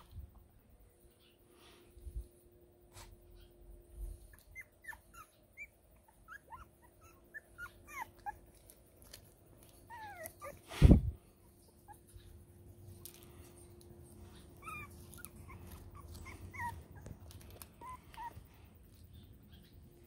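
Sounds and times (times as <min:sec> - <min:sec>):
puppy whining: 0:03.3 - 0:12.5, 0:13.6 - 0:19.7
puppies whimpering and yipping: 0:04.2 - 0:08.9, 0:09.6 - 0:12.4, 0:14.0 - 0:18.8.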